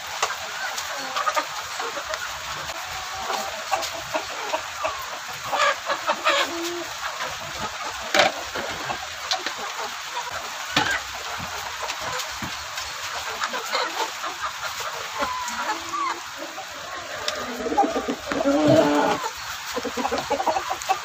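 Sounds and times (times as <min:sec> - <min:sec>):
chickens clucking: 0:00.0 - 0:21.0.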